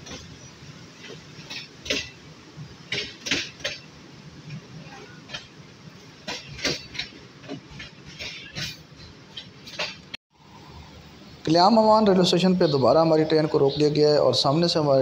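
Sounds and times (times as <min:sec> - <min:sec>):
train carriage rumble: 0:00.0 - 0:10.2.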